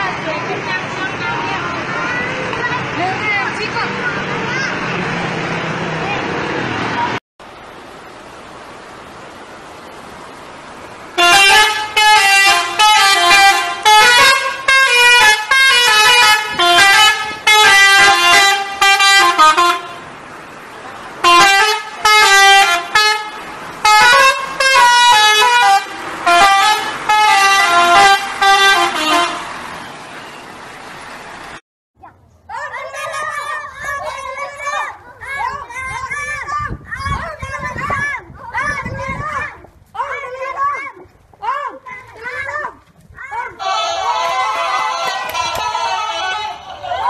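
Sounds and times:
multi-tone bus air horn tune: 0:11.2 - 0:20.1, 0:21.2 - 0:30.4, 0:43.6 - 0:47.0.

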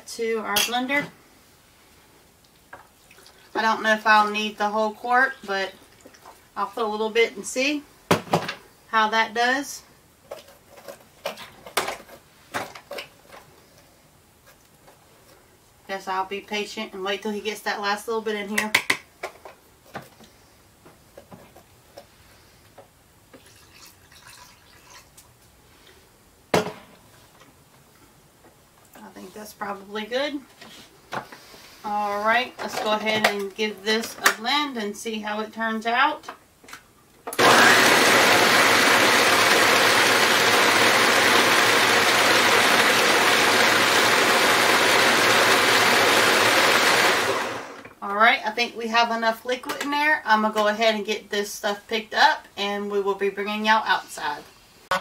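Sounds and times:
milk dripping and pouring: 0:23.4 - 0:25.2
blender motor running: 0:37.4 - 0:47.8.

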